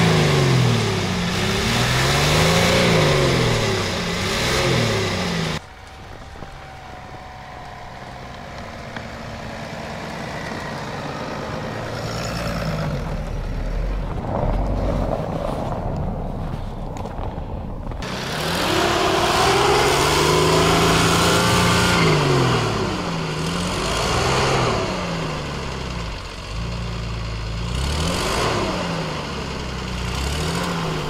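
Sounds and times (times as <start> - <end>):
vehicle engine revving hard: 0.0 - 5.6, 18.0 - 31.0
engine running steadily: 0.0 - 31.0.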